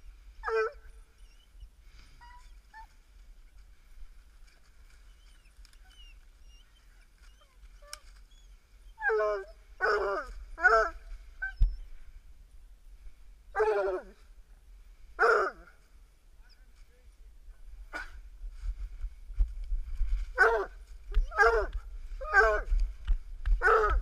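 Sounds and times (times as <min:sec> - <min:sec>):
faint high dog whines: 0:00.4 - 0:02.9, 0:05.1 - 0:11.9, 0:20.4 - 0:22.7
dog barking: 0:15.2 - 0:15.6, 0:20.4 - 0:22.7, 0:23.6 - 0:24.0.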